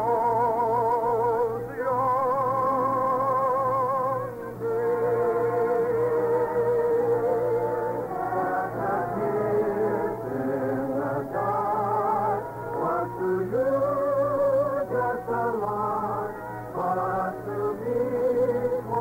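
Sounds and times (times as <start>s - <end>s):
person singing with vibrato: 0.0s - 19.0s
orchestral music: 4.5s - 14.0s.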